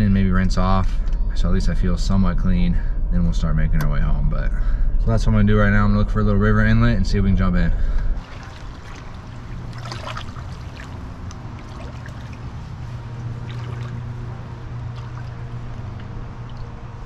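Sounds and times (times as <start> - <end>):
steady low rumble: 0.0 - 17.0
feet splashing in water: 8.2 - 17.0.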